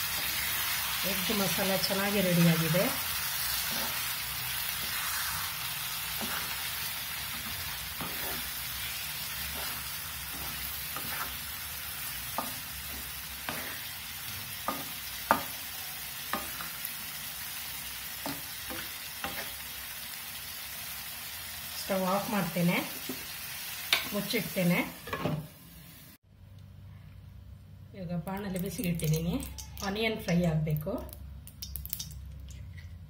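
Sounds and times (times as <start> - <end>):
gravy sizzling and bubbling: 0.0 - 26.2
spatula tapping a pan: 12.2 - 13.7, 14.6 - 15.6, 16.3 - 16.7.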